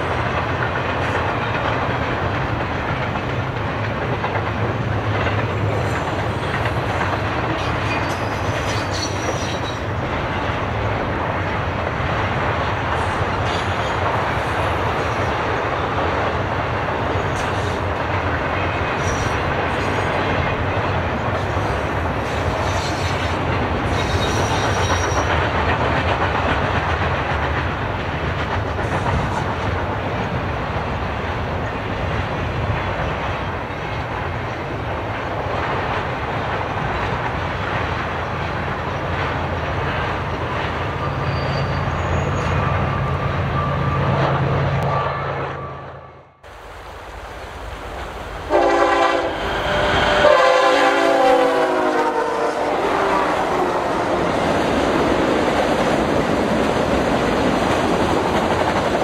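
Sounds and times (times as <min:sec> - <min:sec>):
train wheels rumbling on rails: 0:00.0 - 0:59.0
high-pitched wheel squeals: 0:41.0 - 0:44.1.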